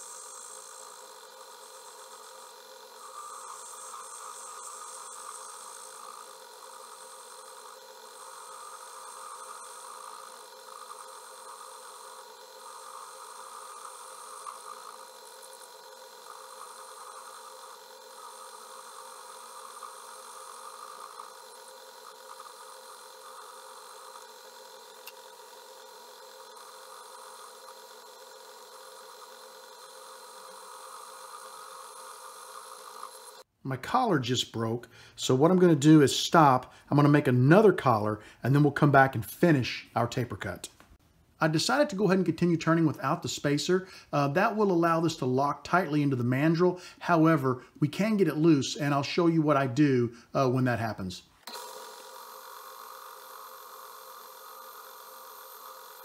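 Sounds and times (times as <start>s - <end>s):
lathe humming: 0.0s - 33.5s, 51.4s - 56.0s
hissing cutting noise: 0.0s - 39.1s, 44.4s - 56.0s.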